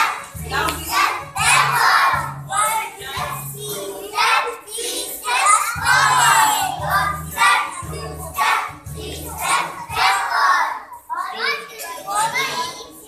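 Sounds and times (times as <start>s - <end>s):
backing track with low bass: 0.0s - 4.0s, 5.8s - 10.2s
children singing in unison: 0.0s - 13.0s.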